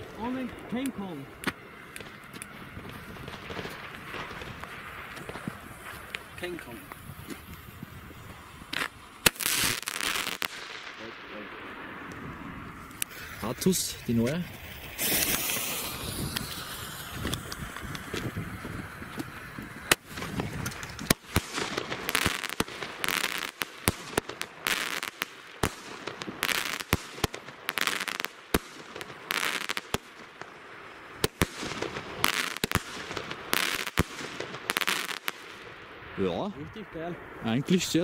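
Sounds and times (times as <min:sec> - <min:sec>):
firework shots: 0:00.0 - 0:36.5
hissing crackle: 0:00.0 - 0:38.0.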